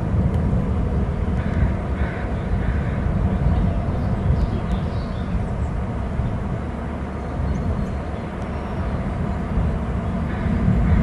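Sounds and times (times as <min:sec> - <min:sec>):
wind: 0:00.0 - 0:11.0.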